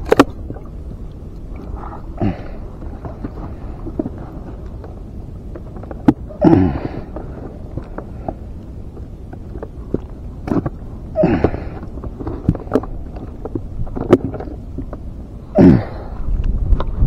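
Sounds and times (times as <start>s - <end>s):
water slapping against kayak hull: 0.0s - 0.7s
water gulps: 1.4s - 5.0s, 5.8s - 8.6s, 9.4s - 14.6s.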